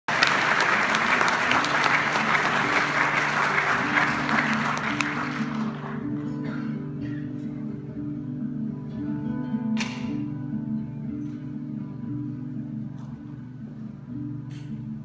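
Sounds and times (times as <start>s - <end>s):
audience applause: 0.1s - 6.3s
acoustic guitar picking notes: 4.0s - 15.0s.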